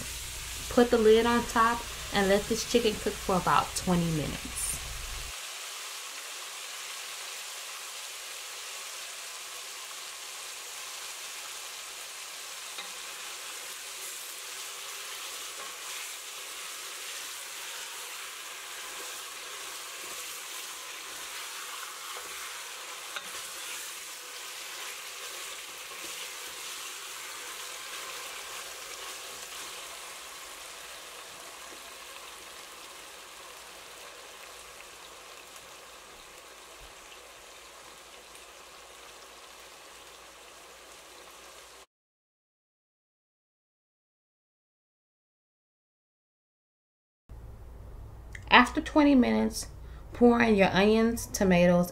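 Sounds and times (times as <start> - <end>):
chicken sizzling in hot oil: 0.0 - 41.9
wooden spoon stirring: 15.2 - 29.8.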